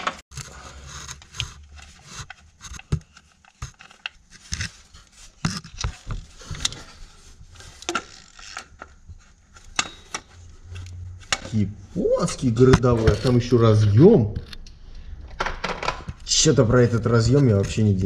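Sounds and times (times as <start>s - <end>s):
metallic clicks and scrapes of tools: 0.1s - 11.6s.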